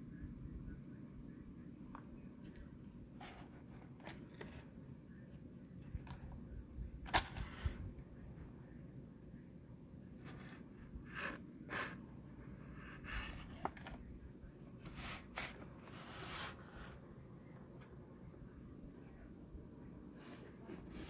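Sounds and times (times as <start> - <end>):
soft rustles of blister cards: 2.4 - 7.9.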